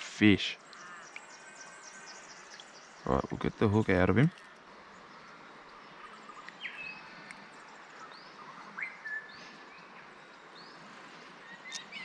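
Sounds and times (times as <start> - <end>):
birds chirping: 0.0 - 12.0
whistled bird notes: 8.0 - 9.9, 11.4 - 12.0.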